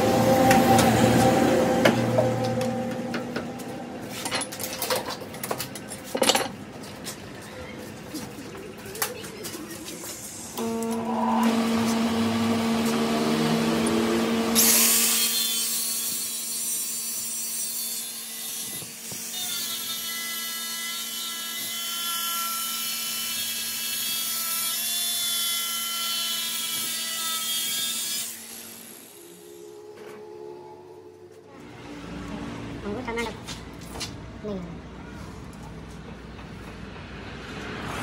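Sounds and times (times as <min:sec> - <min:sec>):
machine hum: 0:00.0 - 0:05.9, 0:10.3 - 0:14.8
angle grinder grinding steel: 0:10.6 - 0:30.0.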